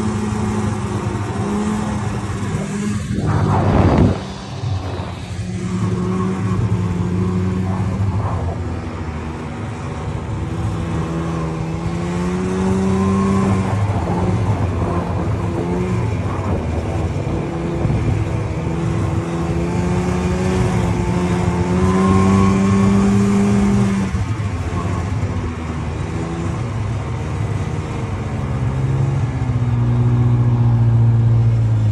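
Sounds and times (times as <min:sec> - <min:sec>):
snowmobile engine revving: 0:00.0 - 0:25.2.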